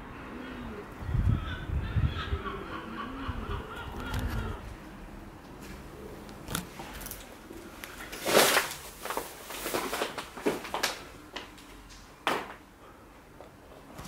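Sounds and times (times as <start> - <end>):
footsteps crunching over debris: 7.8 - 11.6.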